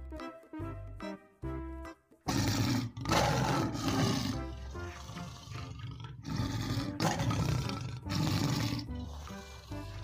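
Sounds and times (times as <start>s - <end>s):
background music: 0.0s - 10.0s
big cat roaring: 2.3s - 10.0s.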